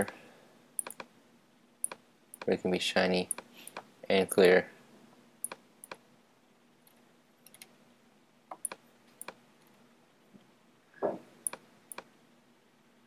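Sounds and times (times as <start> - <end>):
faint steady hum: 0.0 - 13.0
mouse buttons clicking: 0.8 - 1.1, 3.3 - 3.9, 8.5 - 9.4, 11.4 - 12.1.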